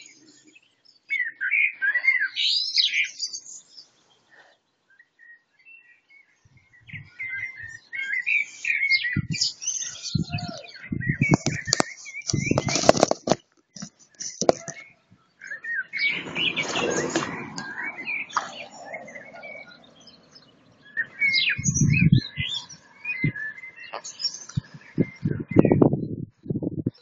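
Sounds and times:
birds singing: 0:00.0 - 0:27.0
wind rumble on microphone: 0:06.4 - 0:07.8, 0:09.1 - 0:13.4, 0:16.0 - 0:27.0
loud rushing noise: 0:16.0 - 0:19.2.

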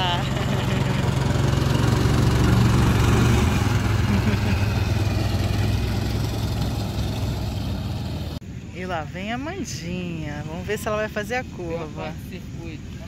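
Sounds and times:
small ride-on car engine: 0:00.0 - 0:08.4.

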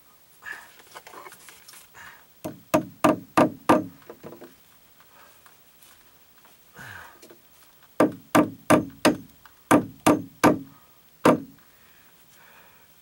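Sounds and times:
hammer blows on staples: 0:02.4 - 0:04.2, 0:08.0 - 0:11.6.

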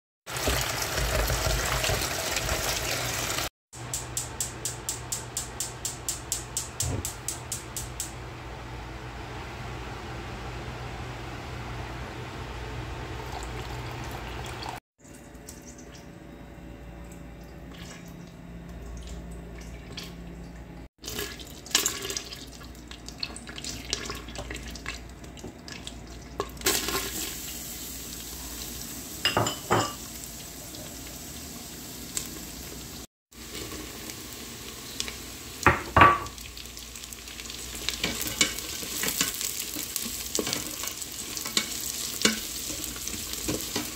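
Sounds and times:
oil sizzling in a pot: 0:00.3 - 0:07.0, 0:26.4 - 0:43.9
spatula stirring vegetables: 0:37.5 - 0:43.9.

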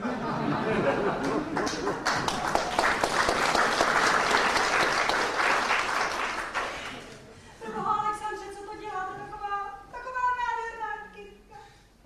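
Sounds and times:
audience applauding: 0:01.1 - 0:07.3.

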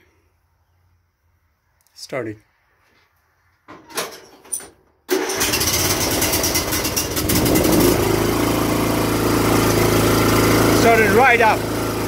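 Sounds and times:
electric starter cranking: 0:05.1 - 0:12.0
riding mower engine running: 0:05.1 - 0:12.0.

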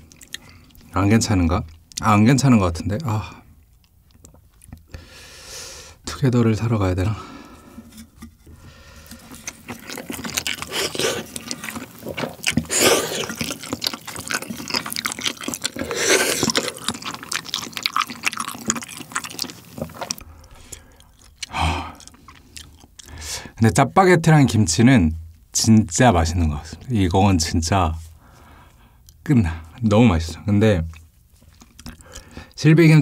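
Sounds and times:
chewing with wet mouth smacks: 0:00.0 - 0:01.0, 0:03.0 - 0:04.9, 0:09.0 - 0:23.2, 0:30.9 - 0:32.6
noodles slurped: 0:09.0 - 0:23.2.

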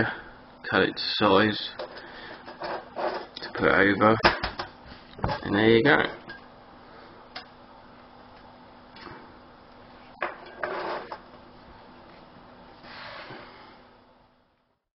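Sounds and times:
scrape and rustle: 0:02.5 - 0:03.3, 0:10.0 - 0:11.2.

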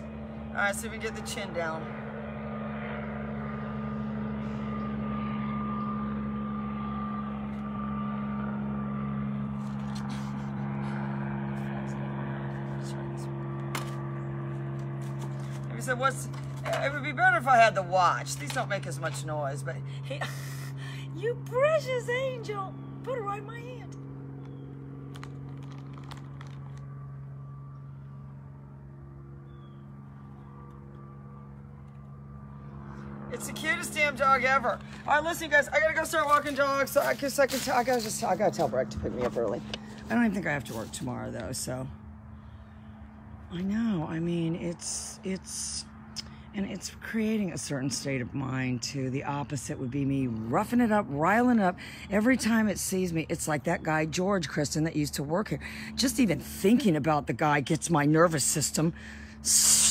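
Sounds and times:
mechanical hum: 0:00.0 - 0:51.4.

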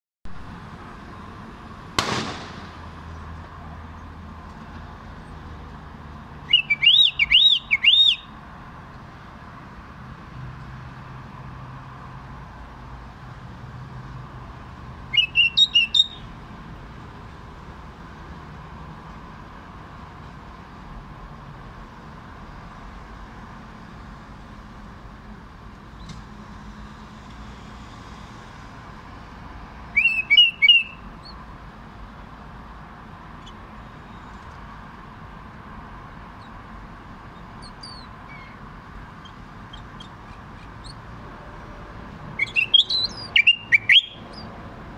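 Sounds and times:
bird singing warbled phrases: 0:06.4 - 0:08.4, 0:15.1 - 0:16.3, 0:29.9 - 0:31.5, 0:37.2 - 0:41.1, 0:42.3 - 0:44.6.

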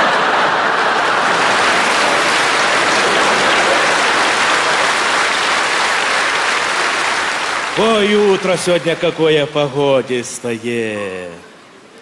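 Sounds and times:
audience laughing: 0:00.0 - 0:05.1
audience applauding: 0:00.0 - 0:09.8.

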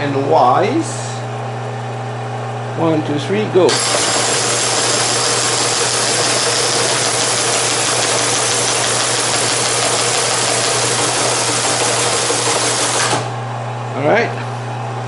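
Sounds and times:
motor hum: 0:00.0 - 0:15.0
teletype mechanical clatter: 0:03.7 - 0:13.3.

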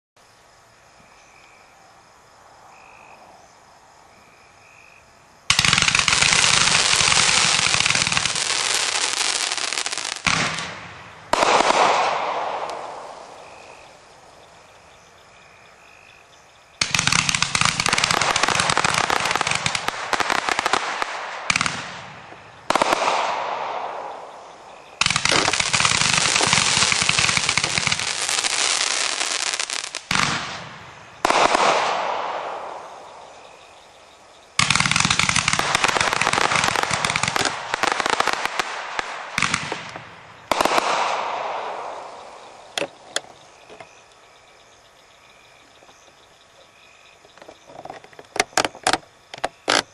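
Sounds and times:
fireworks crackling with hiss: 0:05.4 - 0:14.1, 0:16.8 - 0:43.4
firework bursts: 0:05.5 - 0:14.0, 0:16.8 - 0:33.4, 0:34.6 - 0:43.0.

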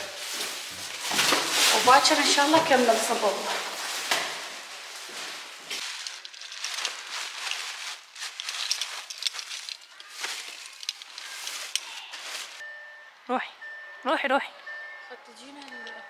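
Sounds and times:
plastic bags rustling: 0:00.0 - 0:12.6.

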